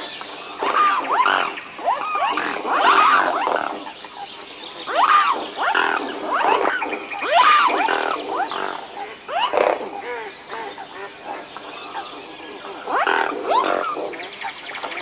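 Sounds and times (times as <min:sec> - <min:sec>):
swans calling: 0:00.0 - 0:15.0.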